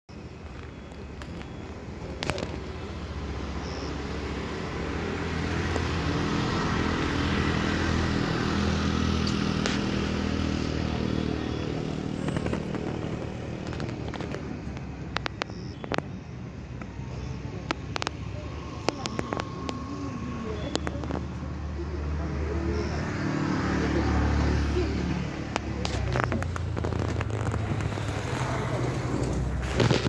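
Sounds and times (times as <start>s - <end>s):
motorcycle passing: 2.0s - 30.0s
sharp clicks: 9.1s - 21.6s, 25.4s - 30.0s.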